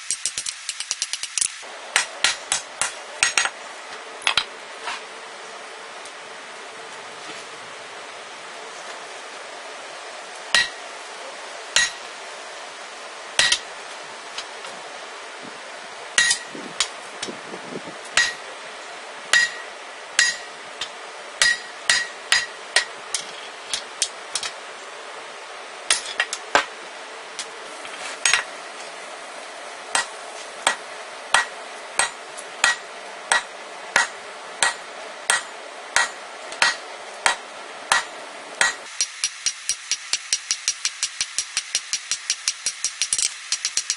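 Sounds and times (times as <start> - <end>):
hammer striking metal on anvil: 0.0 - 3.6, 10.5 - 10.8, 11.8 - 12.1, 13.4 - 13.7, 16.2 - 16.9, 18.1 - 18.5, 19.3 - 24.5, 25.9 - 26.7, 29.9 - 43.9.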